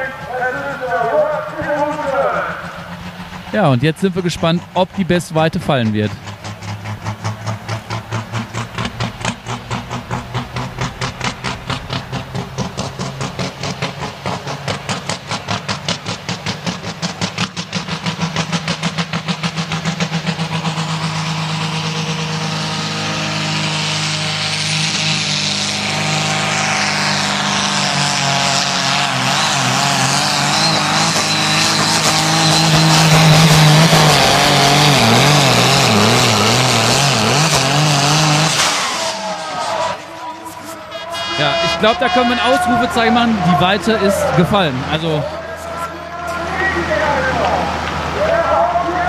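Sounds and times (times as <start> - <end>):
diesel engine under full load: 0.0 - 49.0.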